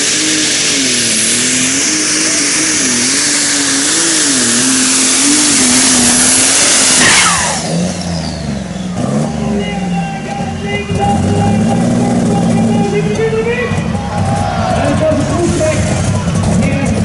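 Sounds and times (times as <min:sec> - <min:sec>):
tractor diesel engine running flat out: 0:00.0 - 0:17.0.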